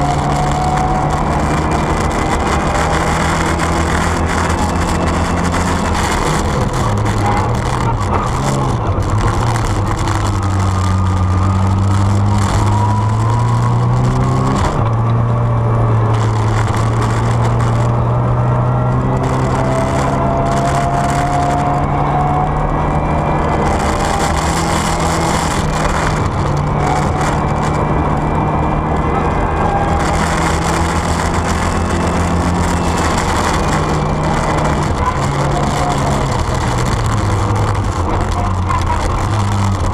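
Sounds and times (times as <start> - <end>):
rally car engine revving: 0.0 - 39.9
tyres rushing on snowy road: 0.0 - 39.9.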